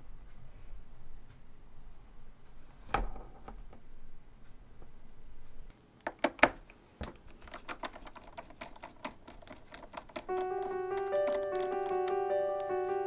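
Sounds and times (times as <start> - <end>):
piano music: 10.1 - 13.0.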